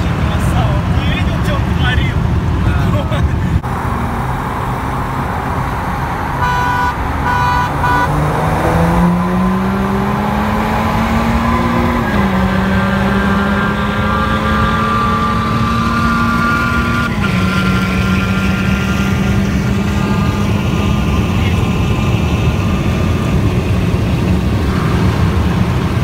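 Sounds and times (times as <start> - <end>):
diesel car engine accelerating: 0.0 - 26.0
car horn toots: 6.4 - 8.2.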